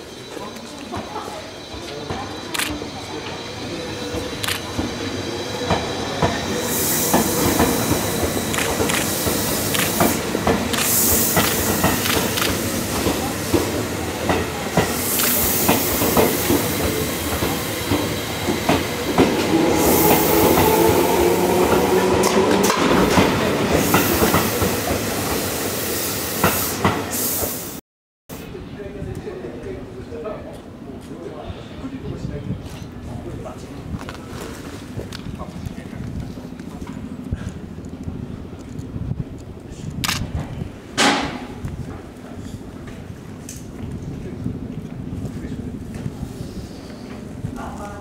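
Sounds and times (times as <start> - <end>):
train wheels clicking over rail joints: 5.6 - 20.8
hissing bursts: 6.6 - 14.0.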